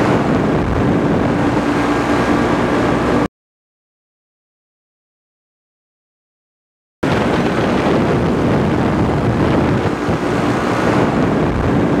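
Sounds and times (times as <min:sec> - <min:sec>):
engine drone: 0:00.0 - 0:03.3, 0:07.0 - 0:12.0
wind rush: 0:00.0 - 0:03.3, 0:07.0 - 0:12.0.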